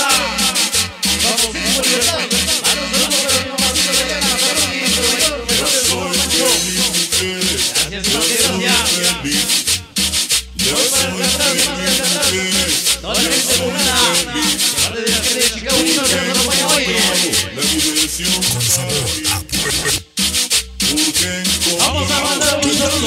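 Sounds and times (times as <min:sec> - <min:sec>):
dance music with pulsing bass: 0:18.3 - 0:20.0.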